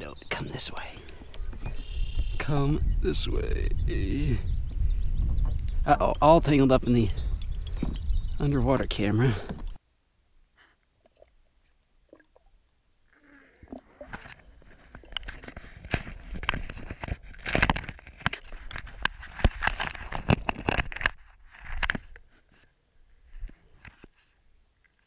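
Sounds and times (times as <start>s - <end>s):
underwater crackles and scrapes: 13.6s - 24.4s.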